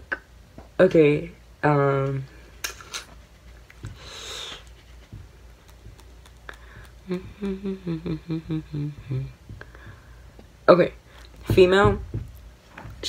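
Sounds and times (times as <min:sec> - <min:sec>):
breathy exhale: 0:04.0 - 0:04.6
short wordless pitched vocal sounds: 0:07.0 - 0:09.4.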